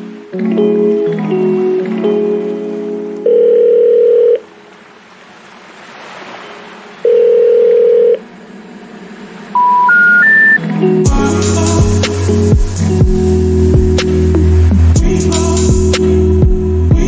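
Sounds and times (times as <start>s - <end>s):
low telephone beeps: 3.2s - 4.4s, 7.1s - 8.2s, 9.6s - 10.6s.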